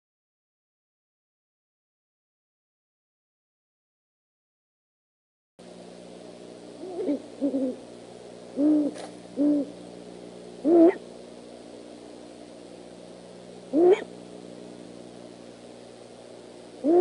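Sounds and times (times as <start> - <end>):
owl hooting: 6.8 - 7.8, 8.5 - 9.8, 10.6 - 11.1, 13.7 - 14.2, 16.8 - 17.0.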